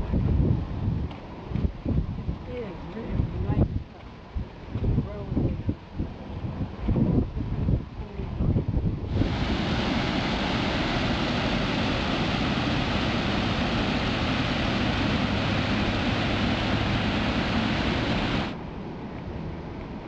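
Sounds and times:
water rushing over dam: 9.1s - 18.6s.

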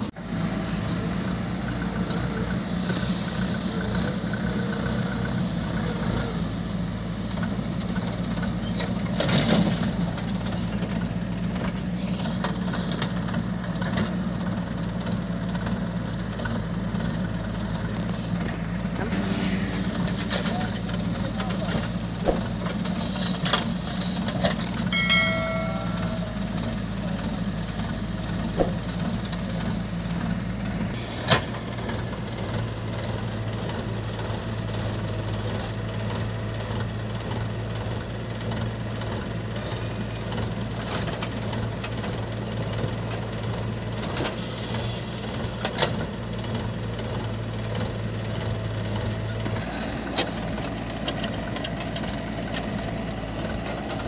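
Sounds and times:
diesel engines running: 0.0s - 54.0s
short pitched sound: 18.5s - 21.9s, 24.9s - 26.8s.

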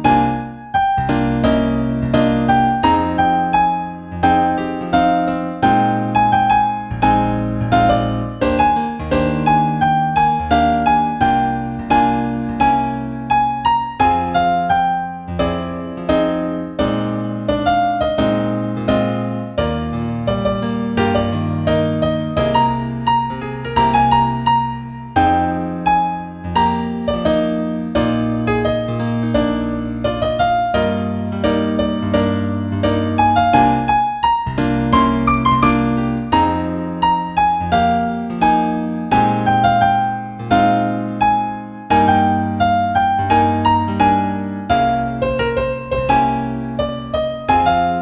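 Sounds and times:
gentle piano music: 0.0s - 48.0s.

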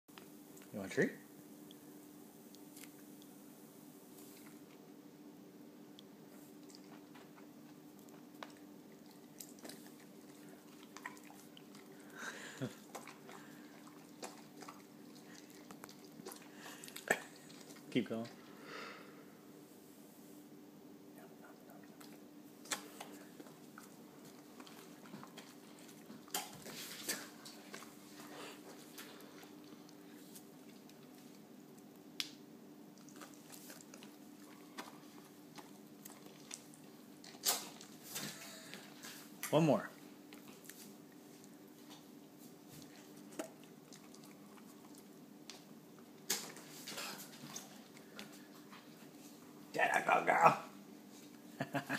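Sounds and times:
low steady hum: 0.1s - 51.9s
faint sharp clicks and smacks: 5.9s - 11.9s, 12.8s - 18.4s, 21.5s - 38.0s, 40.3s - 49.3s.

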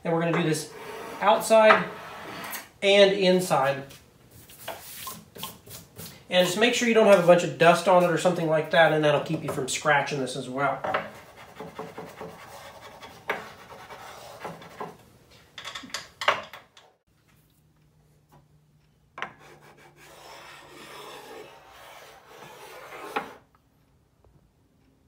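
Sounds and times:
wooden block rubbing on table: 0.7s - 2.7s, 19.2s - 23.4s.

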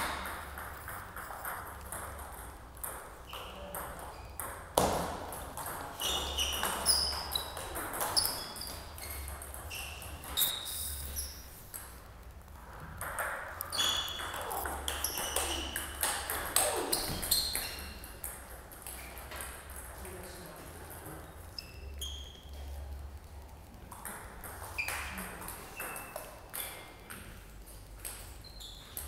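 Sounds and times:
ping pong ball clicking: 0.0s - 10.6s, 12.8s - 20.0s, 23.9s - 29.0s
shoes squeaking on floor: 5.9s - 11.5s, 13.7s - 18.1s, 21.5s - 22.6s, 24.7s - 26.8s, 28.4s - 29.0s.

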